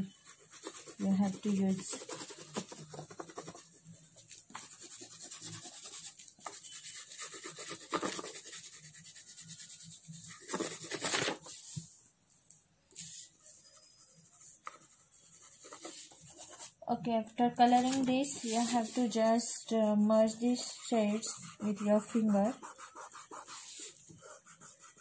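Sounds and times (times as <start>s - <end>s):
crayon scratching on paper: 0.0s - 11.6s, 13.0s - 16.8s, 17.6s - 25.0s
paper swishing: 17.7s - 19.2s.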